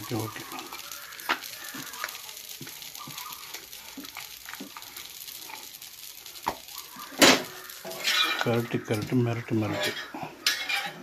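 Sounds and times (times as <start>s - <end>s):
pancake sizzling on griddle: 0.0s - 11.0s.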